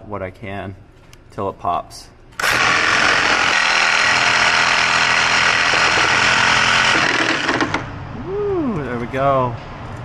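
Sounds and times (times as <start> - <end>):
reciprocating saw cutting metal: 2.4 - 7.9.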